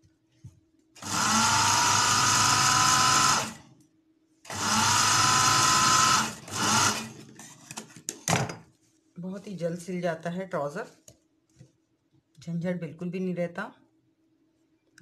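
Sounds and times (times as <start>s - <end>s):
sewing machine stitching: 1.0s - 3.6s, 4.5s - 7.2s.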